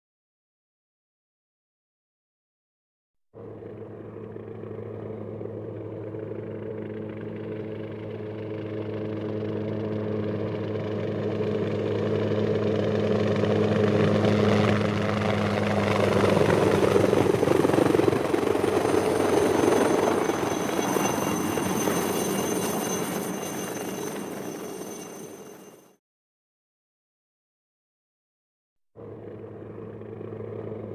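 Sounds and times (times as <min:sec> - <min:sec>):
helicopter rotor hum: 0:03.4 - 0:26.0, 0:29.0 - 0:30.9
high turbine whine: 0:14.2 - 0:25.8.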